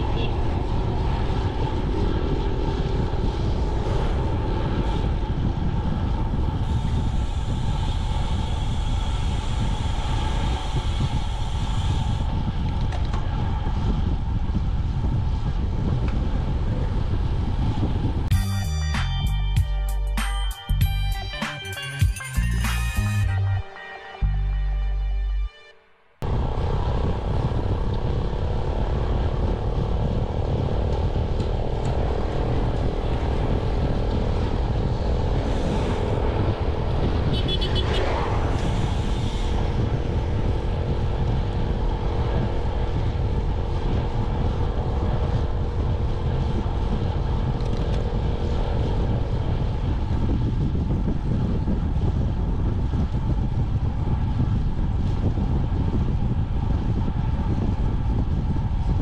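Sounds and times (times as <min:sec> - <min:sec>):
wind buffeting: 0:00.0 - 0:18.3, 0:26.2 - 0:59.0
motorcycle engine drone: 0:00.0 - 0:18.4, 0:26.1 - 0:59.0
road rumble: 0:00.0 - 0:25.5, 0:26.2 - 0:59.0
vehicle passing: 0:31.1 - 0:45.7.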